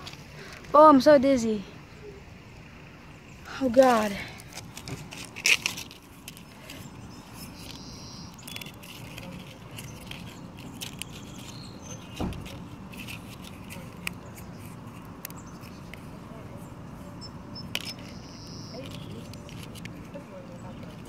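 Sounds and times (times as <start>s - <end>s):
outdoor background noise: 0.0s - 21.0s
phone handling clicks and rustles: 3.8s - 16.0s, 17.6s - 20.2s.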